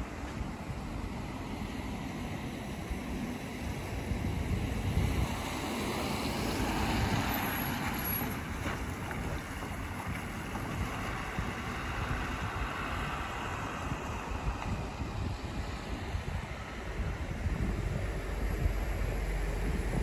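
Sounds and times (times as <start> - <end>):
tyres hissing on wet asphalt: 0.0 - 20.0
wind buffeting microphone: 0.0 - 20.0.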